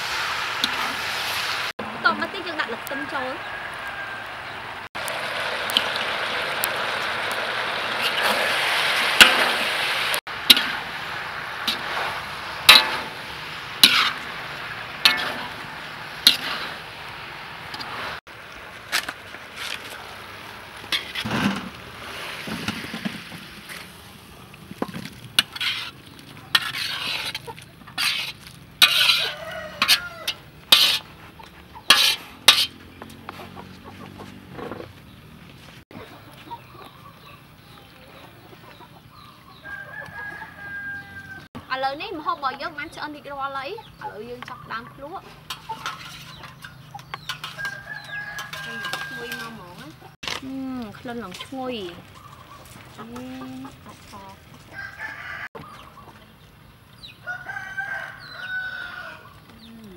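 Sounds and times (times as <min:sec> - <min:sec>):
food sizzling in a wok: 0:00.0 - 0:31.2
utensil clinking and scraping wok: 0:00.6 - 0:01.5, 0:05.2 - 0:33.5, 0:44.1 - 0:54.5.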